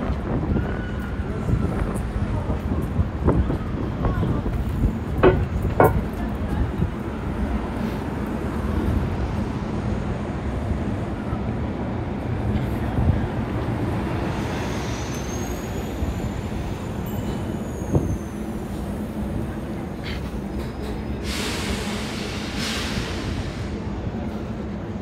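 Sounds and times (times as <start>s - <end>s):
large vehicle rumbling: 0.0s - 25.0s
sharp knock: 5.2s - 6.1s.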